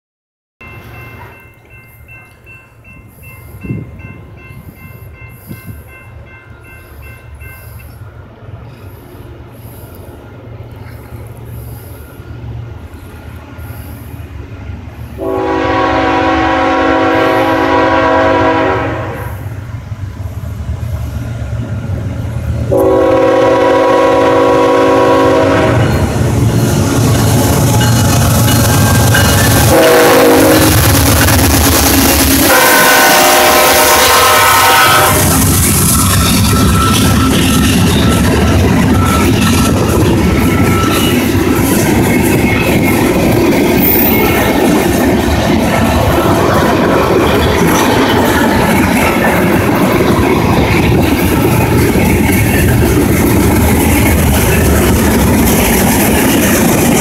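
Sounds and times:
diesel locomotive rumble: 0:00.6 - 0:57.0
locomotive air horn blasts: 0:15.2 - 0:19.4, 0:22.7 - 0:26.0, 0:29.6 - 0:31.3, 0:32.4 - 0:35.4.

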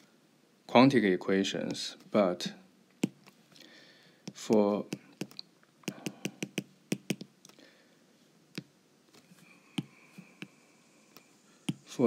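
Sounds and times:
stylus tapping on glass screen: 0:04.3 - 0:07.3.

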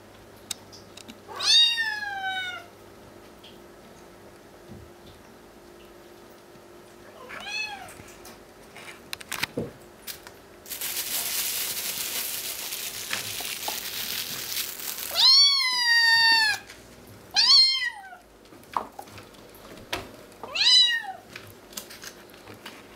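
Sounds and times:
steady hissing noise: 0:10.6 - 0:15.6
kittens meowing: 0:15.1 - 0:16.7.

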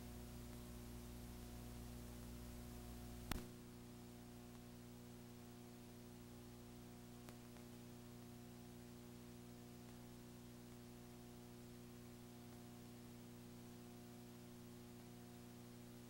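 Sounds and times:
faint hiss: 0:00.0 - 0:16.0
steady electrical hum: 0:00.0 - 0:16.0
sharp click: 0:03.3 - 0:03.5.

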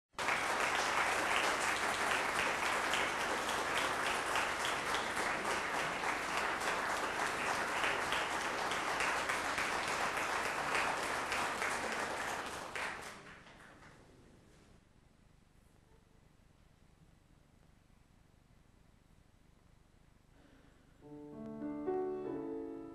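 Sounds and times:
audience applauding: 0:00.1 - 0:14.1.

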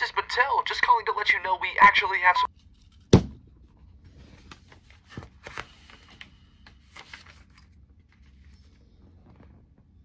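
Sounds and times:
book pages rustling: 0:04.1 - 0:09.6.

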